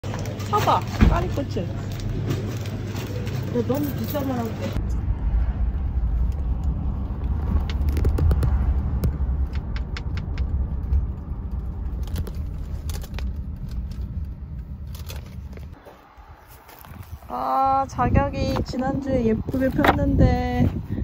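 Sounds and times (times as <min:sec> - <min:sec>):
car cabin road rumble: 0:00.0 - 0:21.0.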